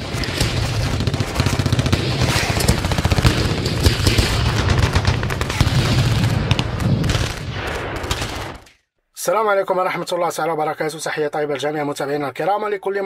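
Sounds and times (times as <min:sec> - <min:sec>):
rapid rattle of cracks: 0:00.0 - 0:05.8.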